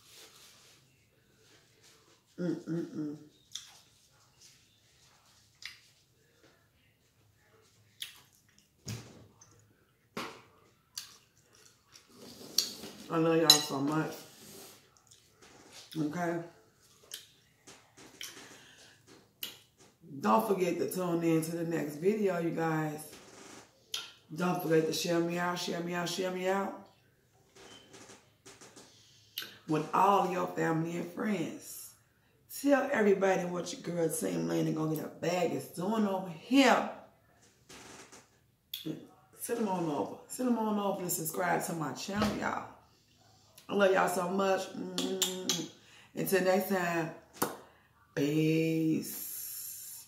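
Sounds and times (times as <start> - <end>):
person chewing wetly: 7.9 - 13.0, 14.8 - 16.0.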